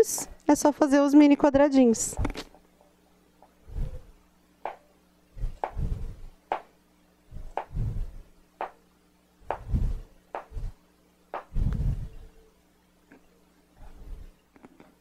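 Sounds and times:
dull thumps: 5.4 - 6.7, 7.4 - 8.8, 9.4 - 12.0.

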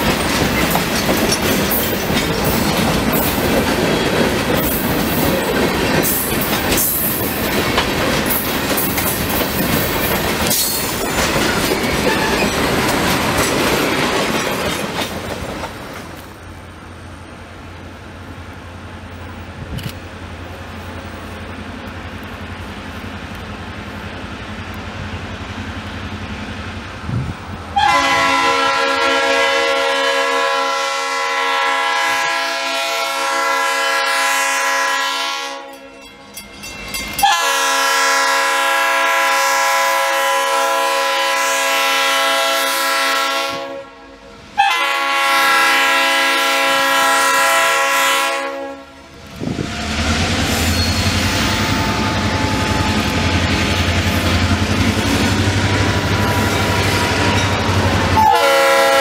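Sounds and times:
locomotive engine and wheels: 0.0 - 59.0
locomotive air horn blasts: 27.8 - 36.0, 37.2 - 49.0, 50.9 - 53.4, 58.1 - 59.0.

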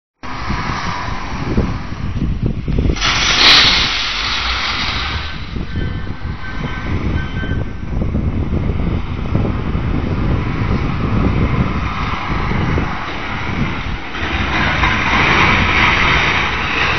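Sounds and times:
wind buffeting microphone: 0.2 - 16.9
crushed stone pouring: 2.9 - 5.7
faint short beeps: 5.7 - 7.8.

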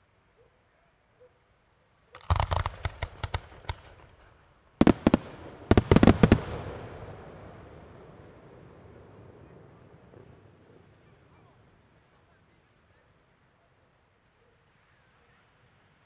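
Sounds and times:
firework shells bursting: 2.2 - 4.1, 4.8 - 8.0
echoing rumble: 4.9 - 9.4.

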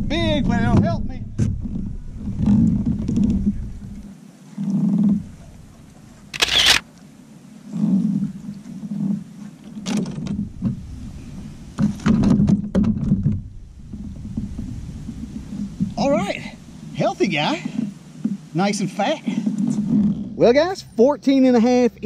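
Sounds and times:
quick clicks: 6.4 - 6.8
knocks and bumps on kayak: 9.8 - 16.0.

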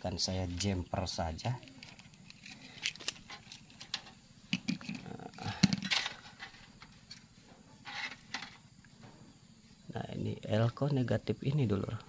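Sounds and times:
wire clicks and rustling: 1.4 - 7.3.

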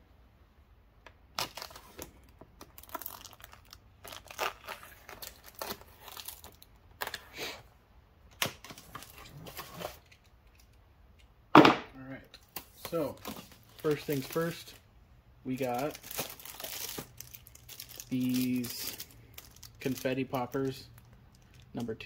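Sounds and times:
packaging crinkling: 1.3 - 7.2, 12.4 - 14.8, 15.5 - 21.8
packaging being cut and torn: 1.4 - 7.3, 15.9 - 20.0.

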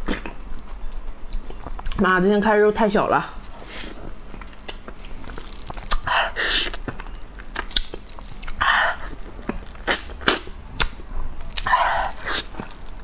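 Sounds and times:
wet mouth smacking: 5.7 - 12.7
lip and tongue clicks: 5.7 - 13.0
breathy rushes: 11.6 - 12.6.

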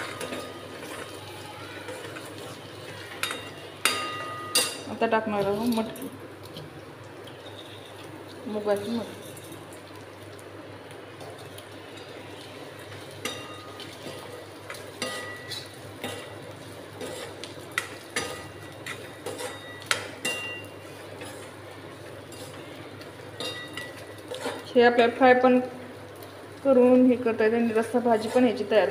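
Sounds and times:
spoon stirring beans in pan: 0.0 - 4.8, 5.4 - 25.2, 27.5 - 28.9
metal spoon clinking on pan: 3.2 - 4.9, 13.2 - 16.4, 17.0 - 20.8, 23.4 - 24.6.

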